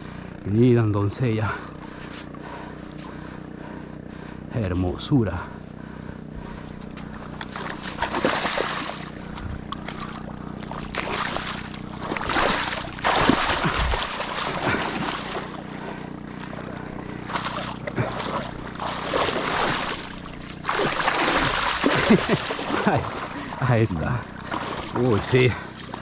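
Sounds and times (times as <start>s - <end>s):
steady low hum: 0.0s - 26.0s
fish splashing in water: 7.0s - 26.0s.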